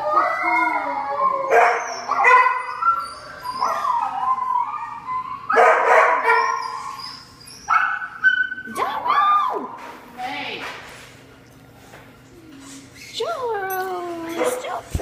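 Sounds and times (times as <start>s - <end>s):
dog howling and yipping: 0.0s - 9.7s.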